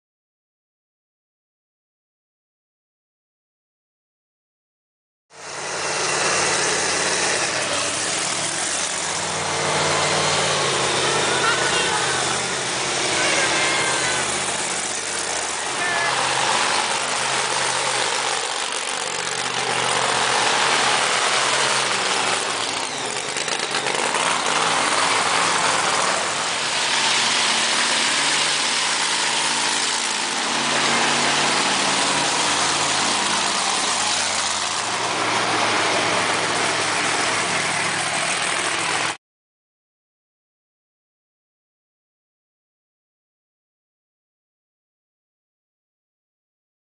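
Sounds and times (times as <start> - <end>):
truck engines driving past: 5.3 - 39.2.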